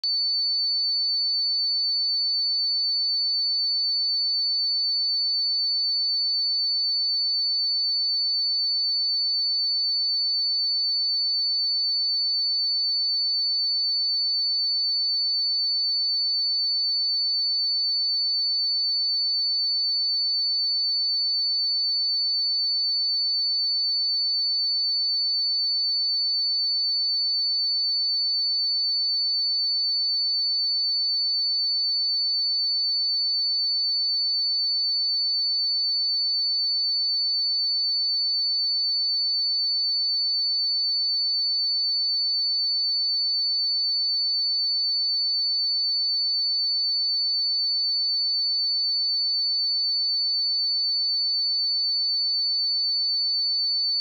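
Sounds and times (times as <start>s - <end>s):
high-pitched sine test tone: 53.7s - 54.0s.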